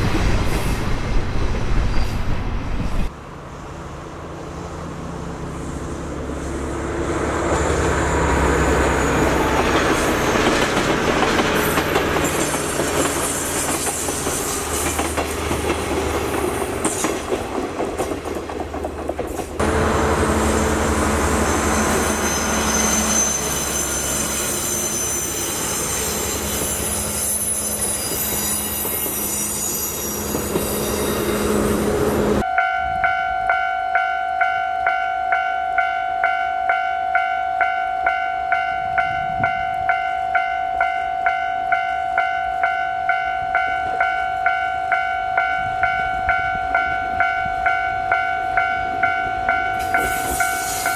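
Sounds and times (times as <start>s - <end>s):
diesel train engine running: 2.5s - 32.4s
wheels clattering on rail: 7.4s - 20.4s
level crossing alarm ringing: 32.4s - 50.6s.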